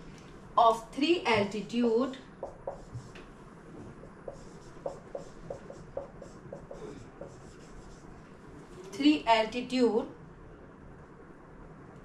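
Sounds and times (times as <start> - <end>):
marker squeaking on whiteboard: 2.4 - 3.2, 4.3 - 8.1.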